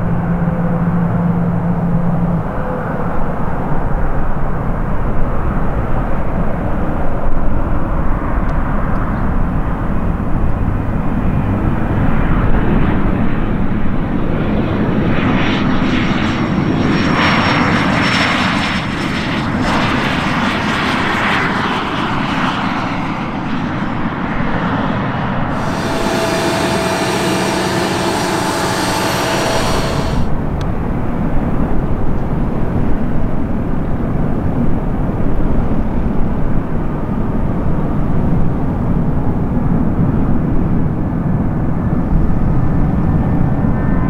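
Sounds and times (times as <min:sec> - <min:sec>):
jet landing rumble: 0:25.5 - 0:30.3
hissing jet whine: 0:25.5 - 0:30.4.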